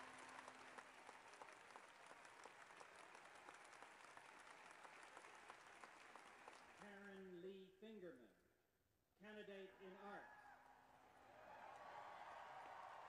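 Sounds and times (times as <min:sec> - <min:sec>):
faint crowd applause: 0:00.0 - 0:07.2, 0:10.4 - 0:13.0.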